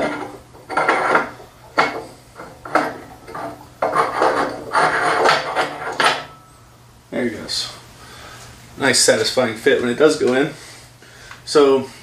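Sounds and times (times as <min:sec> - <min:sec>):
lamp scraping and rattling in socket: 0:00.0 - 0:06.3.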